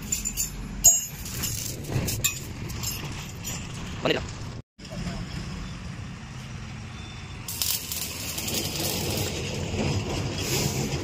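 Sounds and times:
arc welding crackle and hiss: 0:07.5 - 0:09.6.

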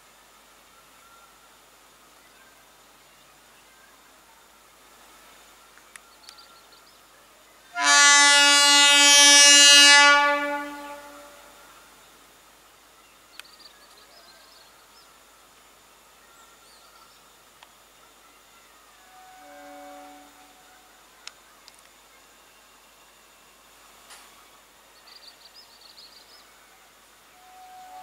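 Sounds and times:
train horn blast: 0:07.7 - 0:11.6, 0:19.0 - 0:20.8, 0:27.3 - 0:28.0.

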